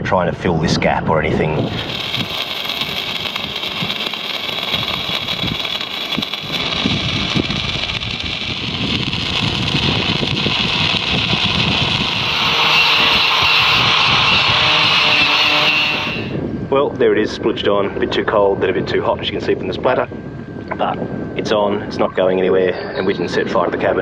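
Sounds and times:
welding arc crackling hiss: 1.6s - 16.4s.

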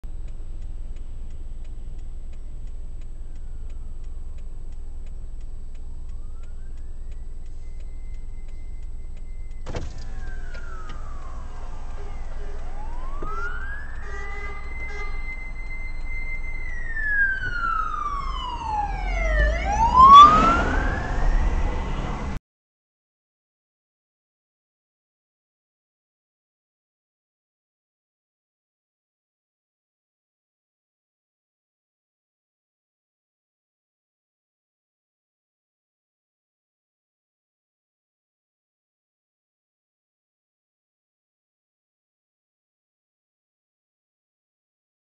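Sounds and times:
car cabin rumble: 0.1s - 18.1s
fire engine sirens wailing: 1.9s - 22.4s.

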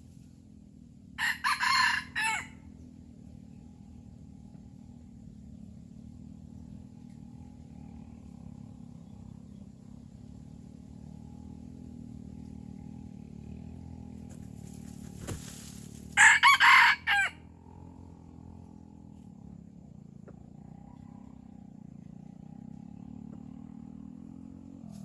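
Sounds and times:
rooster crowing: 1.2s - 2.6s, 16.2s - 17.4s.

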